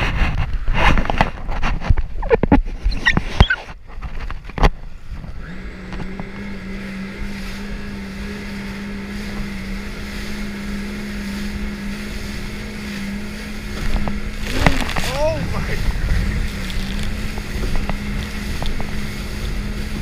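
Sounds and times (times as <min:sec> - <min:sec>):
jet ski engine running: 0:00.0 - 0:20.0
wind buffeting microphone: 0:00.0 - 0:20.0.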